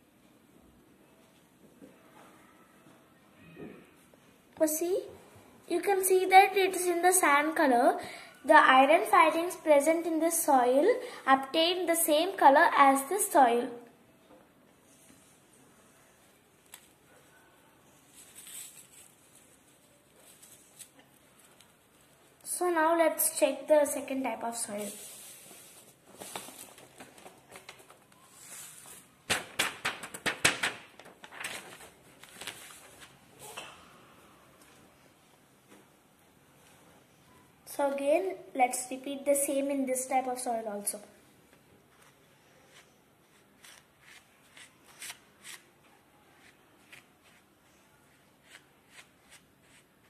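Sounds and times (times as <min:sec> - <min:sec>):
paper rustling: 0:18.0 - 0:22.1, 0:24.8 - 0:33.5
paper crackles and clicks: 0:26.1 - 0:28.2, 0:28.8 - 0:33.2.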